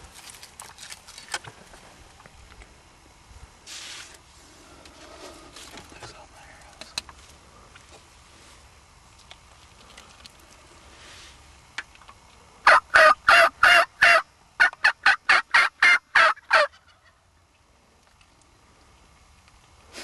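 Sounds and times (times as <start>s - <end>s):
turkey yelps: 12.6s - 17.1s.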